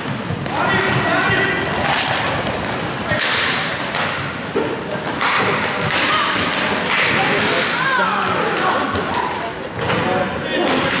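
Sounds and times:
skate wheels rolling: 0.0s - 7.6s
sticks hitting puck: 0.0s - 7.8s, 8.5s - 11.0s.

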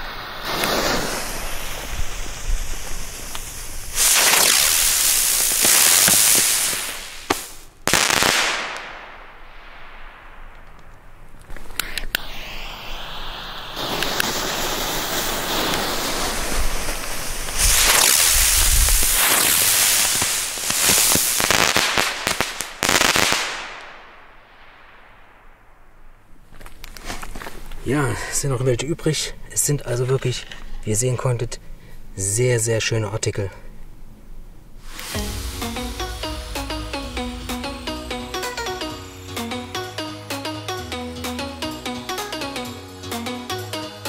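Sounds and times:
firework burst fizzing: 0.0s - 25.9s, 34.8s - 40.5s
firework rising with rushing hiss: 0.0s - 26.1s, 34.8s - 40.0s
firework crack: 0.0s - 27.8s, 34.8s - 41.5s.

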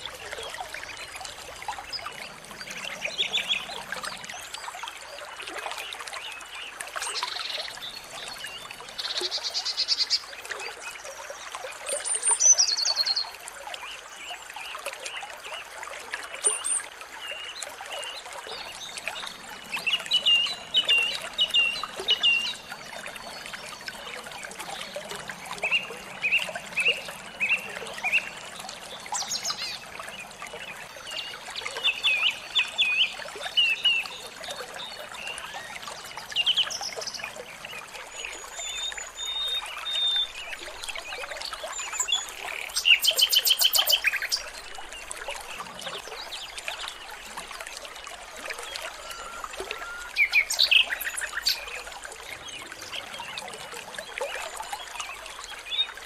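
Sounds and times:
water trickling: 0.0s - 56.0s
songbirds chirping: 48.5s - 56.0s.

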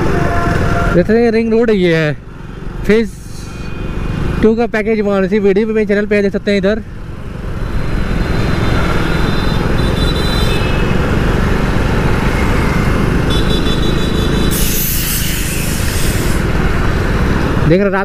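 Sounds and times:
motorcycle engine: 0.0s - 17.8s
road traffic: 0.0s - 18.0s
loud hiss: 14.5s - 16.5s.

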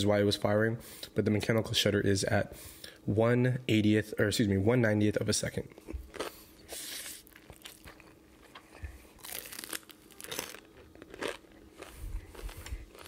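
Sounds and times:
person chewing crunchy food: 5.8s - 13.0s.

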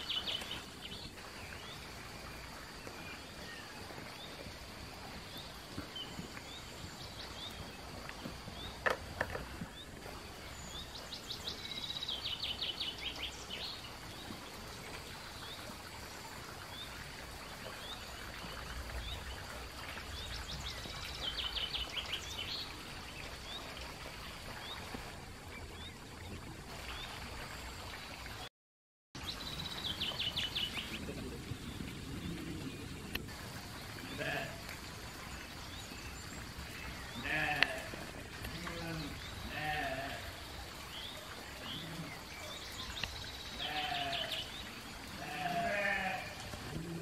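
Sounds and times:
sheep bleating: 37.2s - 40.3s, 45.2s - 47.0s.

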